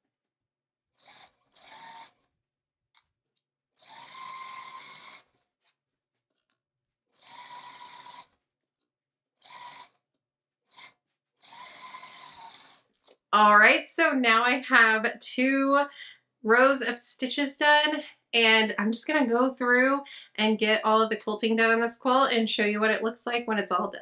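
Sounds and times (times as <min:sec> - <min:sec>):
sewing machine stitching: 0:01.0 - 0:02.3, 0:03.8 - 0:05.4, 0:07.2 - 0:08.4, 0:09.4 - 0:10.0, 0:10.7 - 0:13.1.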